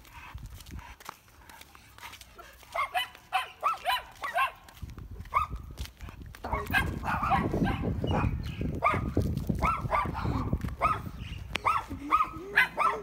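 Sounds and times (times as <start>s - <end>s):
dog barking: 2.4s - 4.6s, 5.3s - 5.6s, 6.4s - 13.0s.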